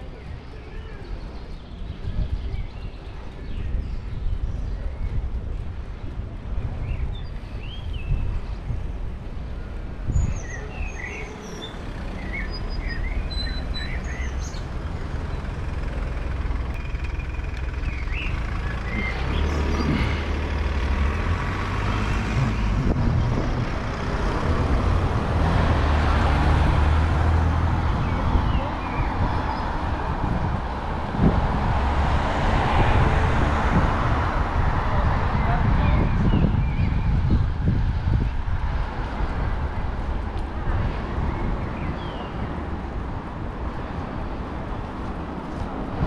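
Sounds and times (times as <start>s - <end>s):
small birds chirping: 0.0s - 21.3s
low rumble of street traffic: 0.0s - 46.0s.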